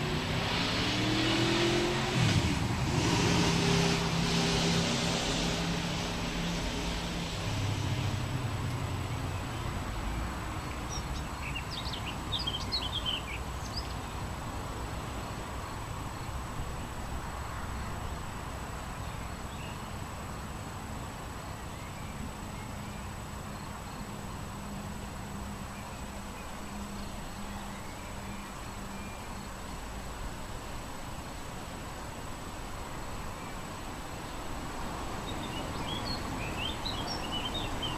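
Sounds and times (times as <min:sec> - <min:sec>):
wind rushing: 0:00.0 - 0:08.4
high songbird chirps: 0:02.9 - 0:14.2, 0:18.9 - 0:20.0, 0:21.4 - 0:24.2, 0:25.6 - 0:29.8, 0:35.1 - 0:37.9.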